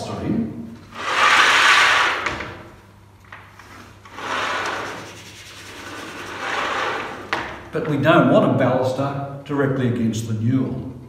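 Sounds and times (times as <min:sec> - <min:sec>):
wooden batten scraping chalkboard: 0:00.9 - 0:02.7, 0:03.5 - 0:07.6.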